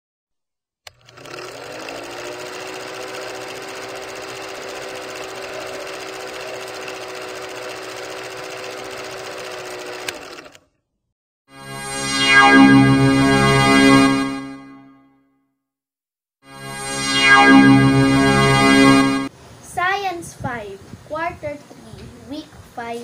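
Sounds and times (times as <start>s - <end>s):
film projector clatter: 0.9s - 10.6s.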